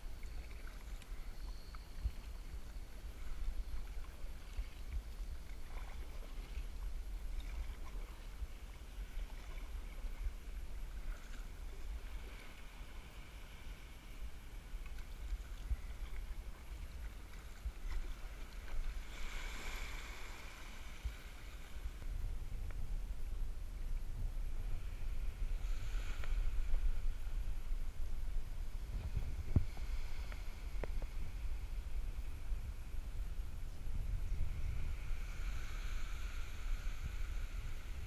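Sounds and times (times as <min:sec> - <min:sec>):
water splashing around kayak: 0:00.0 - 0:23.2
wind rumble on microphone: 0:00.0 - 0:38.0.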